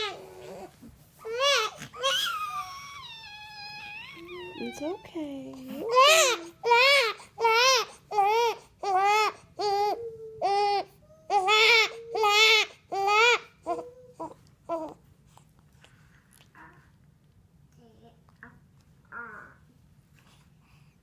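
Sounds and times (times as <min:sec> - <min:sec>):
baby crying: 0:01.3 - 0:05.0, 0:05.8 - 0:15.0.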